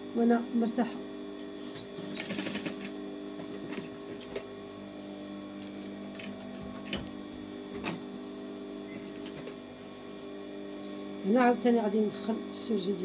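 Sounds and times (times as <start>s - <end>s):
sewing machine motor humming: 1.7s - 8.0s.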